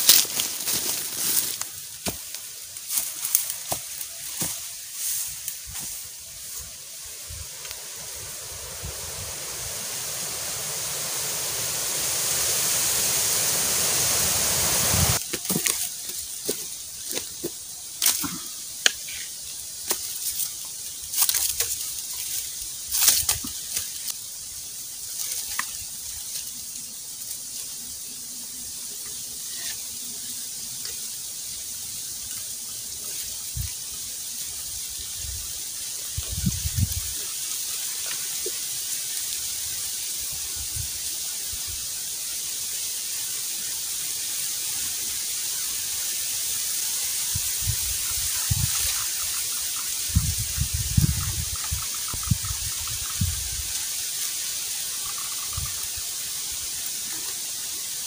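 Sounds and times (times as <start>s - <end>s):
dry sticks cracking: 0.0s - 4.6s, 15.2s - 19.1s, 19.8s - 24.2s
rushing hissing noise: 0.0s - 58.0s.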